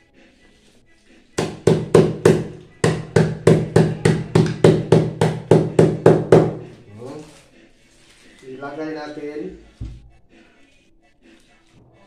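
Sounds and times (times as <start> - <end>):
cleaver pounding on cutting board: 1.4 - 6.7.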